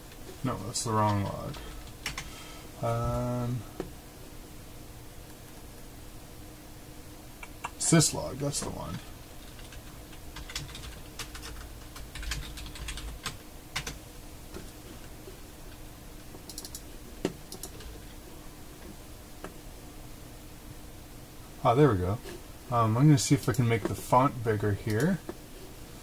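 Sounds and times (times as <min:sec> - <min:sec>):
keyboard typing: 0:01.0 - 0:02.3, 0:09.4 - 0:14.0, 0:16.5 - 0:18.0.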